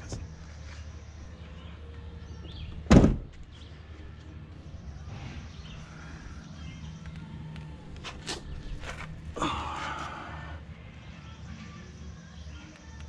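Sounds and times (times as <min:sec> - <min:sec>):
steady low hum: 0:00.0 - 0:12.4
truck door shutting: 0:02.7 - 0:03.5.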